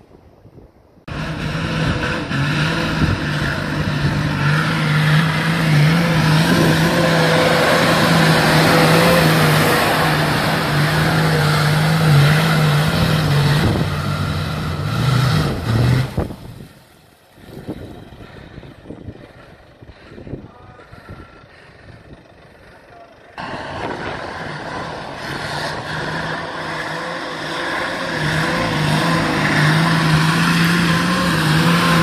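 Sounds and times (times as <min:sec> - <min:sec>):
diesel engine running hard: 0:01.1 - 0:32.0.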